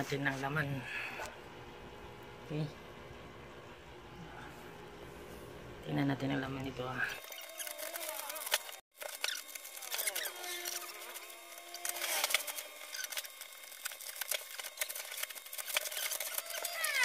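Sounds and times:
plastic packaging crinkling: 7.2s - 17.0s.

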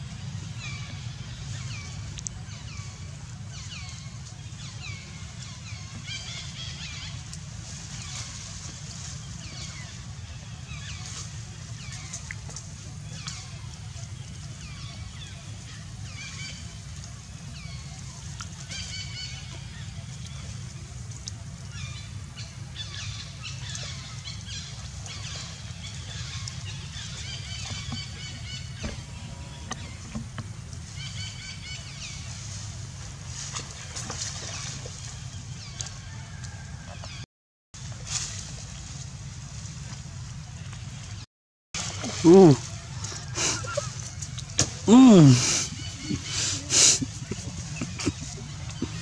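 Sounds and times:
steady low rumble: 45.7s - 49.0s.

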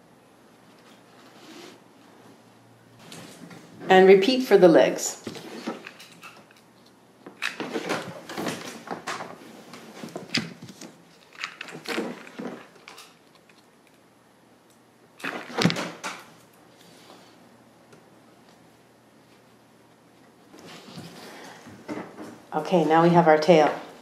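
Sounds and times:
hands rustling craft pieces: 5.3s - 14.0s.

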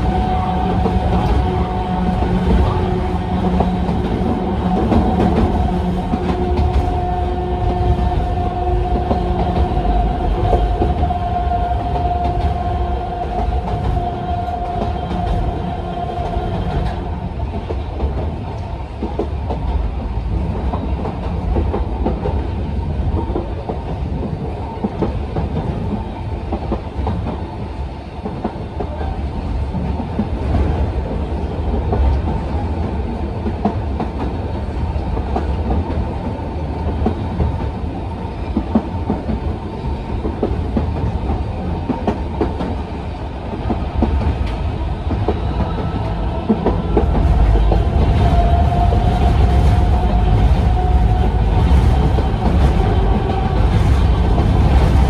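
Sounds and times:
clicks and rattles of railcar: 0.0s - 55.0s
train wheels rumbling on rail: 0.0s - 55.0s.

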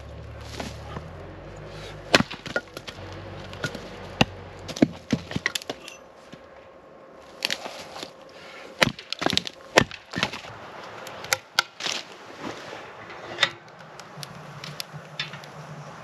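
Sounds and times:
hatchet splitting wood: 1.8s - 6.0s, 8.7s - 10.5s.

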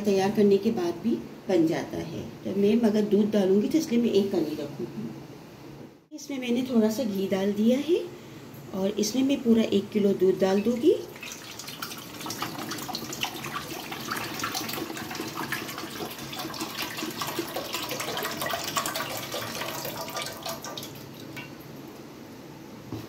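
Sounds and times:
milk pouring and splashing into pot: 11.1s - 21.6s.

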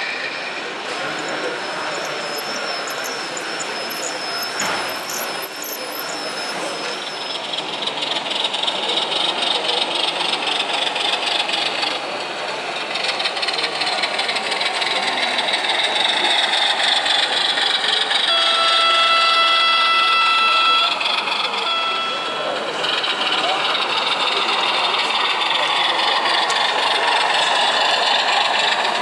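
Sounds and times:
model train running on track: 0.0s - 29.0s.

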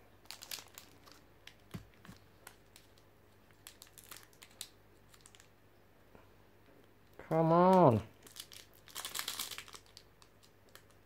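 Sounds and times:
foil wrapper crinkling: 0.2s - 5.5s, 7.7s - 11.0s.

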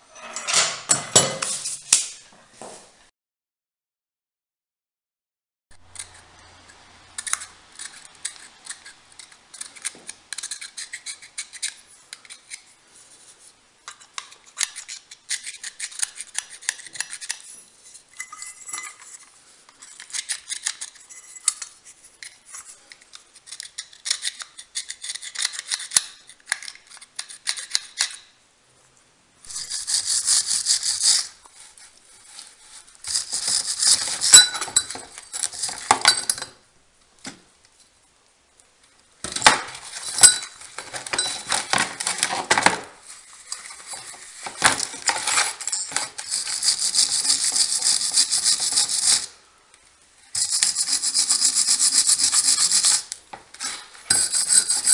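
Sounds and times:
knife blade scraping metal: 0.0s - 1.9s, 14.2s - 28.2s, 32.2s - 36.5s, 43.2s - 49.3s, 50.4s - 54.9s.

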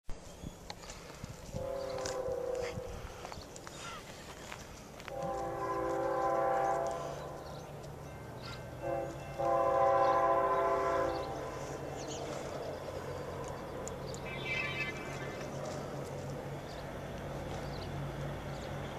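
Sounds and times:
locomotive air horn blasts: 1.5s - 3.2s, 5.0s - 7.5s, 8.8s - 11.8s.

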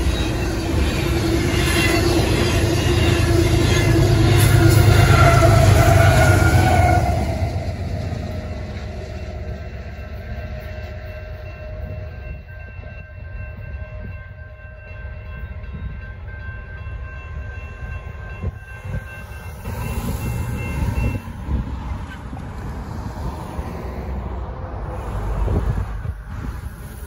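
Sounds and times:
car driving across tracks: 0.0s - 13.2s
railroad crossing bell ringing: 0.0s - 22.4s
freight train rumble: 0.0s - 27.0s.

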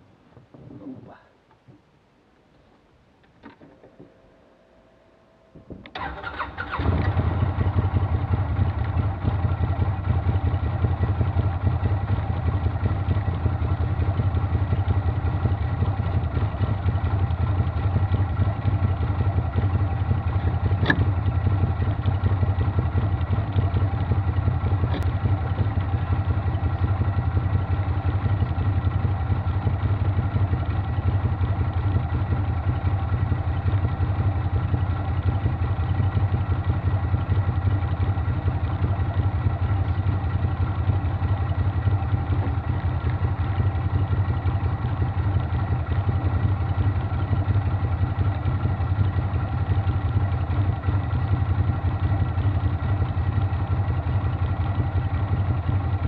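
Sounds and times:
engine starting and idling: 5.8s - 11.6s.

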